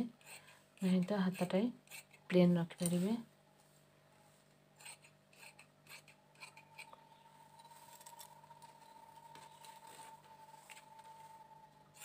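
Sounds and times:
low steady hum: 0.0s - 12.0s
thin high tone: 6.6s - 12.0s.

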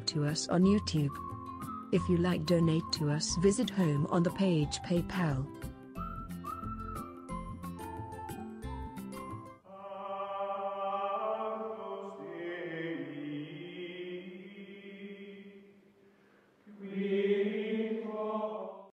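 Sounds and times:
chant-like vocal chords: 9.7s - 15.8s, 16.7s - 18.9s.

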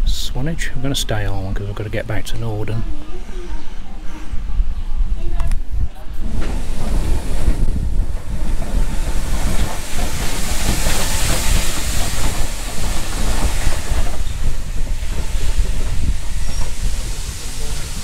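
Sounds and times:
low rumble: 3.1s - 18.0s
steam locomotive hiss of steam: 6.2s - 18.0s.

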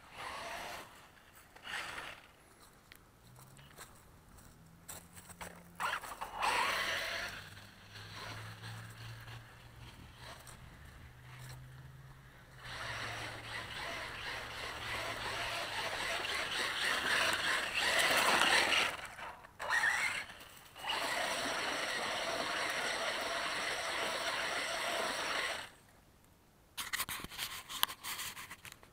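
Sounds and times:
electric motor whine: 0.0s - 2.3s, 5.8s - 11.6s, 12.5s - 25.8s
rc truck tyres and drivetrain hiss: 0.0s - 26.0s, 26.8s - 28.9s.

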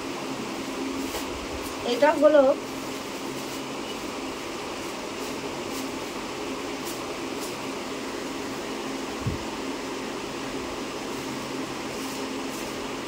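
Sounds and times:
electric fan whirring: 0.0s - 13.0s.

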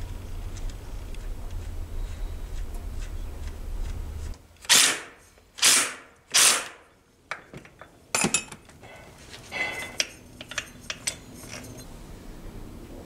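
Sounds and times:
impact driver bursts: 4.6s - 6.8s
metallic clinks of tools: 7.8s - 12.0s.

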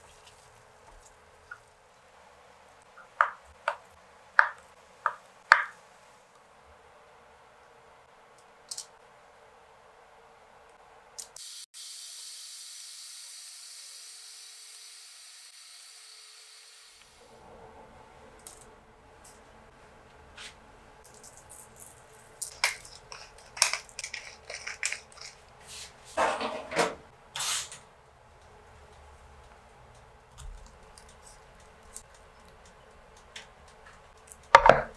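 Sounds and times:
food clicking on baking tray: 22.5s - 25.3s.

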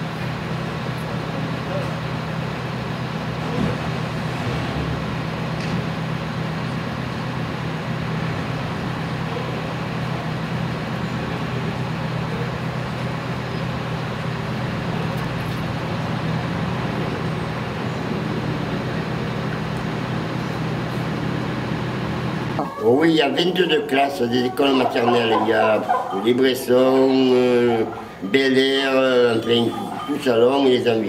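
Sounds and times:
low engine hum: 0.0s - 31.0s
outdoor traffic noise: 0.0s - 31.0s.

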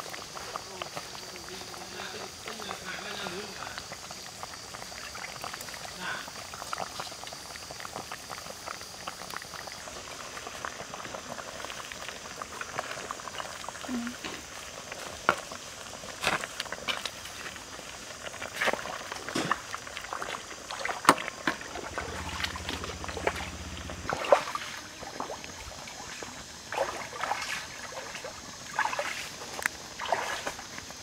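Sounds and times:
liquid sloshing: 18.3s - 30.8s.

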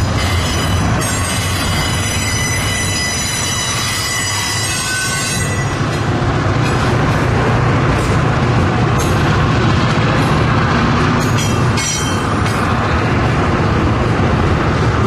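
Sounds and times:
high wheel squeal: 0.0s - 5.9s
train rumbling past: 0.0s - 15.0s.

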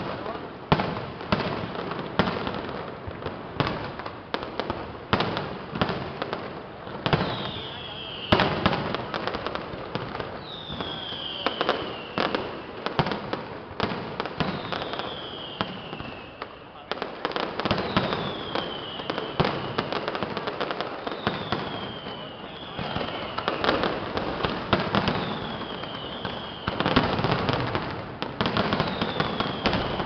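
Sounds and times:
fireworks bangs and crackles: 0.0s - 30.0s
falling firework whistle: 7.0s - 9.1s, 10.2s - 13.2s, 14.3s - 16.9s, 17.7s - 30.0s.

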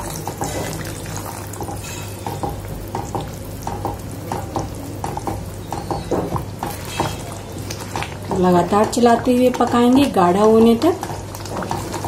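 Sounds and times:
thick sauce bubbling: 0.0s - 12.0s.

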